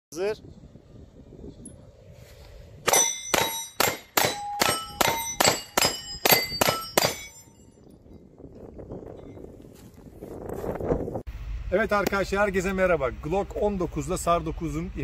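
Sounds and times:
pistol shots: 2.9s - 7.3s
steel targets ringing: 2.9s - 7.9s.

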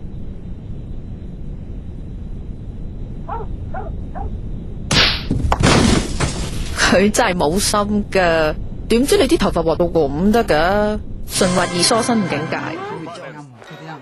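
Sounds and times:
steady low rumble: 0.0s - 12.8s
loud crashing impacts: 4.9s - 6.8s.

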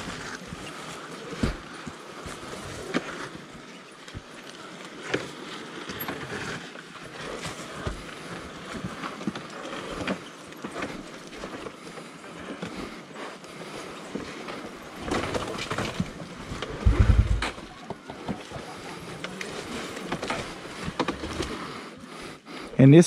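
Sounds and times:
tyres crunching over loose ground: 13.6s - 21.8s
bike clattering over bumps: 14.2s - 18.4s
heavy low thump: 16.8s - 17.6s.

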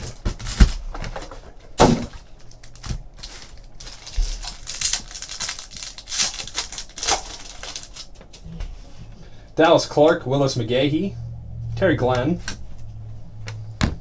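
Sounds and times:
card packs torn open: 0.0s - 1.3s, 2.1s - 8.4s
foil wrapper crinkling: 0.0s - 1.3s, 2.1s - 8.4s.

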